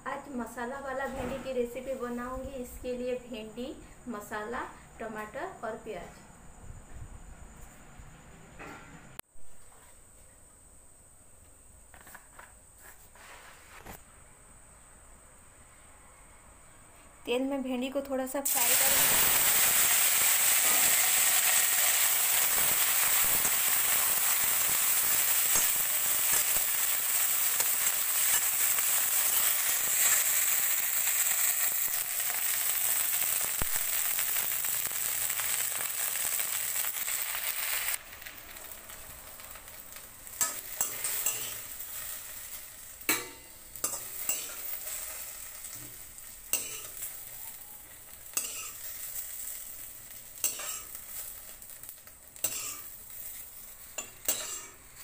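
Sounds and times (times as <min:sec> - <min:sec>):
okra sizzling in hot oil: 0:17.9 - 0:55.0
metal spatula scraping a pan: 0:40.4 - 0:42.3, 0:43.1 - 0:45.9, 0:50.4 - 0:51.3, 0:52.4 - 0:55.0.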